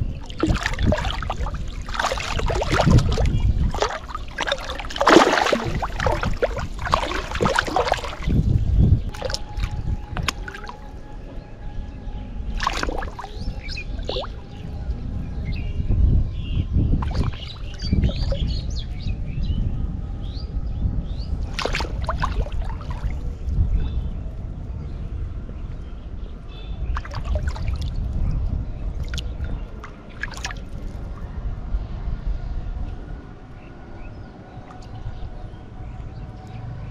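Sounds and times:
water lapping: 0.0 - 11.3, 12.4 - 14.6, 17.0 - 18.9, 21.4 - 23.4, 27.0 - 28.1, 29.0 - 31.2
steady low rumble: 0.0 - 36.9
fish splashing in water: 0.1 - 10.9, 12.5 - 14.4, 17.0 - 18.6, 21.5 - 23.3, 27.0 - 28.0, 29.0 - 30.8.

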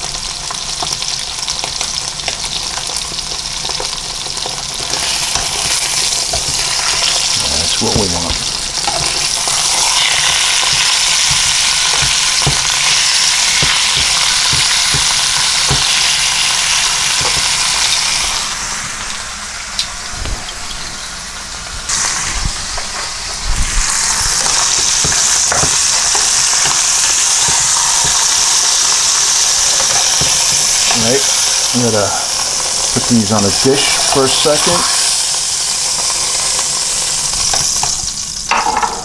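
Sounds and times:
steaks sizzling in oil: 0.0 - 38.9
metal tongs knocking pan: 8.4 - 18.0, 24.4 - 28.6.

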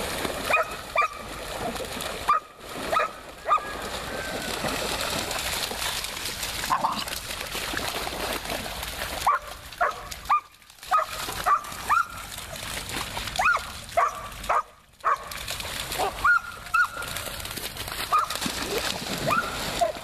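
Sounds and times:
splashing through shallow water: 0.0 - 20.0
dog barking in high yelps: 0.5 - 1.2, 2.3 - 3.8, 9.2 - 12.2, 13.4 - 15.3, 16.0 - 17.1, 18.1 - 18.4, 19.3 - 20.0.

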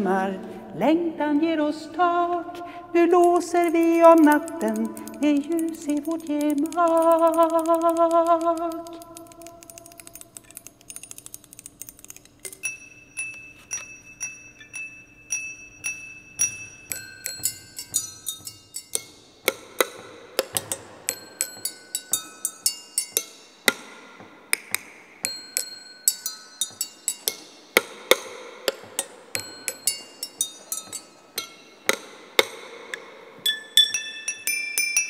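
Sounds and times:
sticks clinking on glass: 8.5 - 23.9, 24.6 - 35.0.

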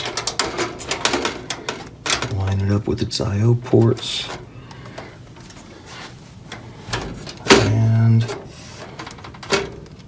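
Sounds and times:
man speaking: 2.3 - 4.4, 7.4 - 8.4.

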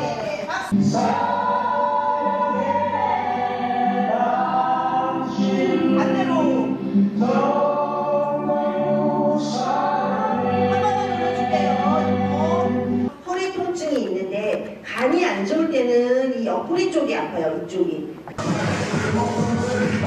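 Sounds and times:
choir singing held notes: 0.0 - 13.1.

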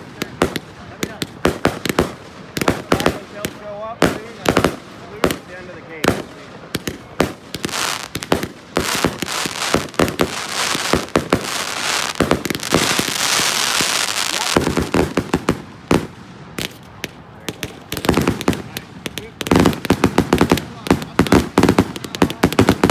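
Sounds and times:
fireworks bursting reports: 0.0 - 22.9
fireworks crackle: 0.0 - 22.9.

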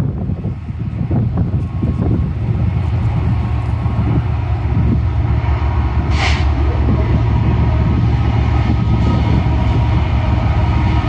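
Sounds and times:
diesel locomotive rumble: 0.0 - 11.0
brief hiss: 6.1 - 6.5.

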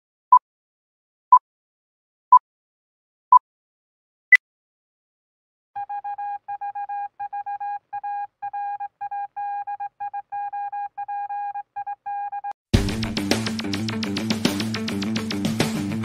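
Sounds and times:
morse code beeping: 5.8 - 12.5.

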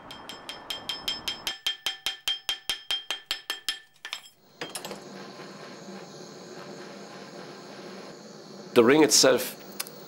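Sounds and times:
steady hiss with low hum: 4.3 - 10.0.

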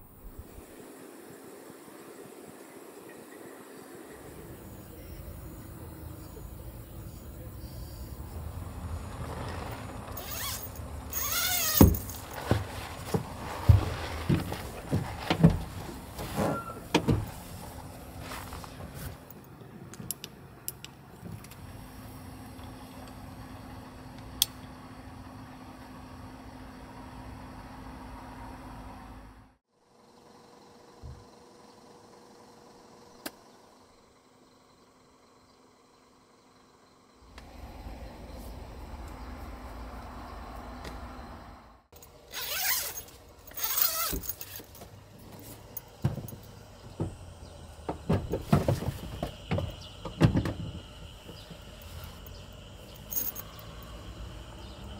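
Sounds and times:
mechanical hum with tone: 0.0 - 54.9
van door rasping: 8.8 - 17.5.

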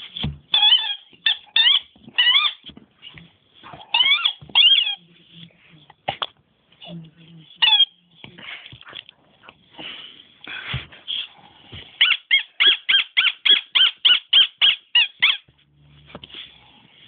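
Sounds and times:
dog yipping: 0.5 - 2.7, 3.8 - 5.0, 7.6 - 7.9, 12.0 - 15.5.

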